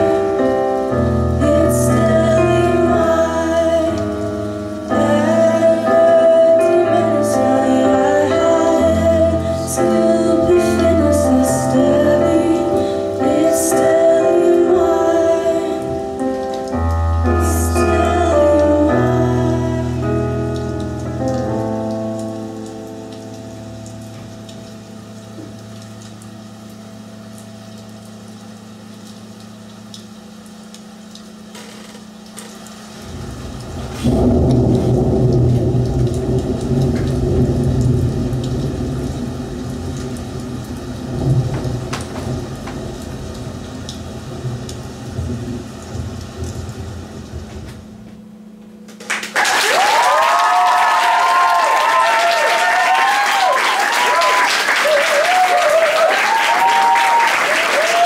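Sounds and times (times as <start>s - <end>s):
faint rain hiss: 0.0s - 58.0s
thunder-like rumble: 33.0s - 48.2s
low drone: 33.0s - 48.9s
audience applause: 48.9s - 58.0s.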